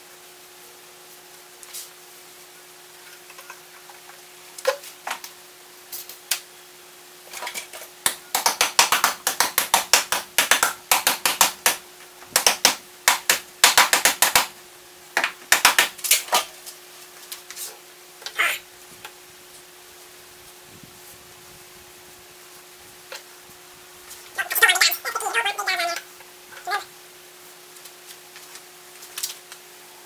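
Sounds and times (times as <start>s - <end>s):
faint steady hum: 0.0s - 30.0s
rapid sharp clicking and tapping: 8.0s - 14.5s, 15.2s - 16.2s.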